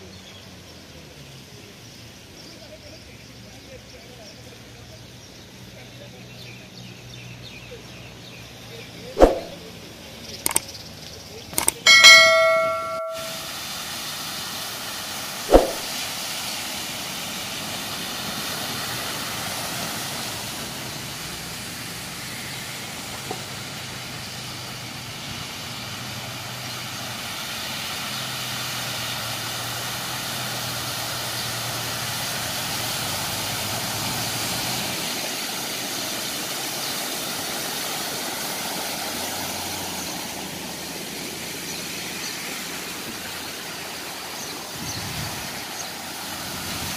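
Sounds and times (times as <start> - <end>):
car engines passing slowly: 0.0 - 46.9
tyres hissing through floodwater: 0.0 - 46.9
short knock: 9.2 - 9.5, 15.5 - 15.9.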